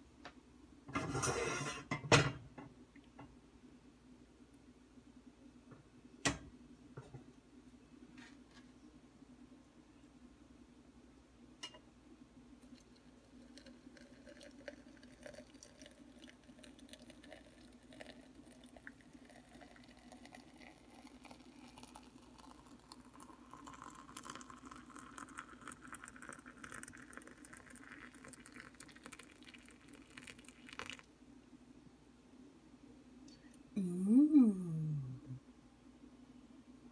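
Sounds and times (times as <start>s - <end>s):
water pouring into a mug: 12.6s - 31.1s.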